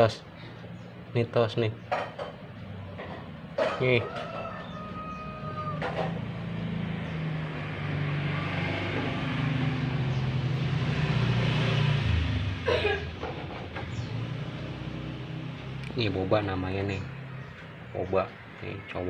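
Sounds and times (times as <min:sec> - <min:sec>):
vehicle engine running: 0:05.8 - 0:18.6.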